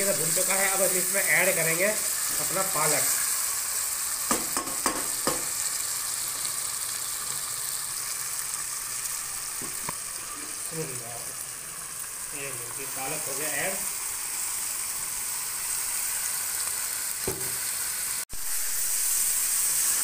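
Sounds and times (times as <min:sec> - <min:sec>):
chicken sizzling in a pot: 0:00.0 - 0:20.0
wooden spoon knocking on pot: 0:04.3 - 0:05.6.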